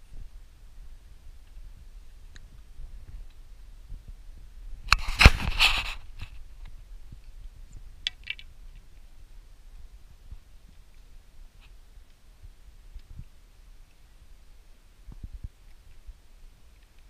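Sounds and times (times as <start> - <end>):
camera handling rustle and knock: 4.9 - 6.4
faint clicks: 6.2 - 9.1, 16.7 - 17.0.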